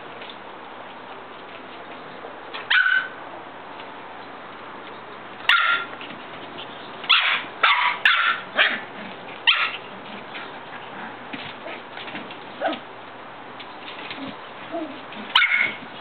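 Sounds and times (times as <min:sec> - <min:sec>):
puppies yapping: 0:02.6 - 0:03.2, 0:05.4 - 0:11.0, 0:14.0 - 0:16.0.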